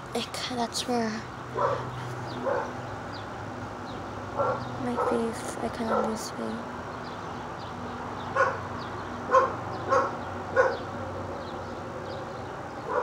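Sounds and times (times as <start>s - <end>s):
dog barking: 1.6s - 2.8s, 4.4s - 5.2s, 5.9s - 6.2s, 8.4s - 8.6s, 9.3s - 10.9s.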